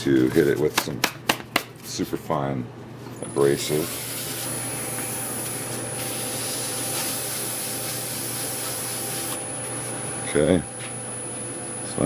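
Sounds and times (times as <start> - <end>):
sandpaper hissing on wood: 3.8 - 4.6, 6.0 - 9.4.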